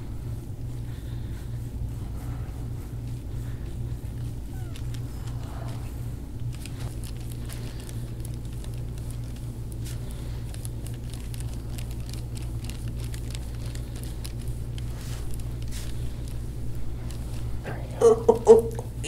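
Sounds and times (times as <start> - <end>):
crunching and crackling tissue: 0.0 - 19.0
steady low hum: 0.0 - 19.0.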